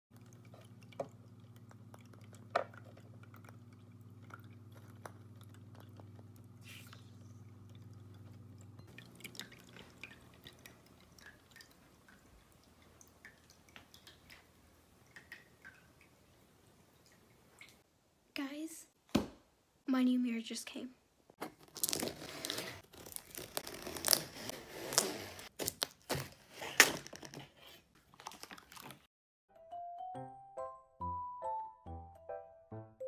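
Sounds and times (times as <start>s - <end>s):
fountain pump hum: 0.1s - 17.8s
water dripping and trickling: 0.1s - 17.9s.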